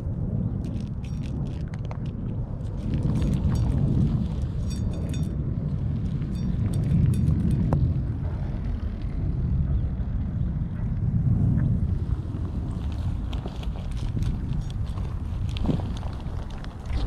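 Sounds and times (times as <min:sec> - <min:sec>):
cat crunching dry kibble: 0:00.0 - 0:05.2, 0:12.7 - 0:17.0
wind buffeting microphone: 0:00.0 - 0:17.0.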